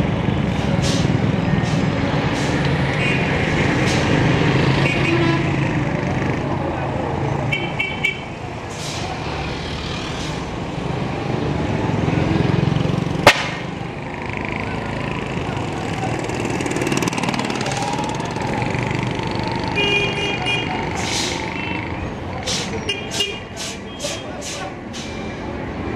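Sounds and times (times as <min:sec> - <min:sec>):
street traffic: 0:00.0 - 0:25.9
motorcycle passing: 0:10.8 - 0:22.0
sharp crack: 0:13.2 - 0:13.8
voices: 0:14.1 - 0:25.2.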